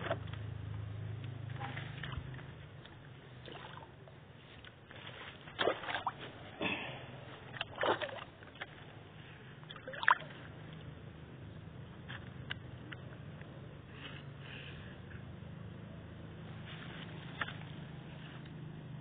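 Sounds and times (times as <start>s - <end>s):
water splashing and sloshing: 1.3s - 10.9s
fish thrashing at water surface: 3.4s - 4.1s, 5.3s - 8.9s.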